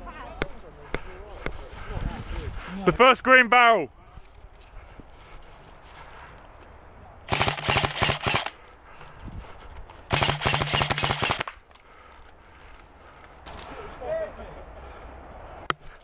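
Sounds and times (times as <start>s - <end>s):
airsoft rifle full-auto fire: 7.3s - 8.6s, 10.1s - 11.6s.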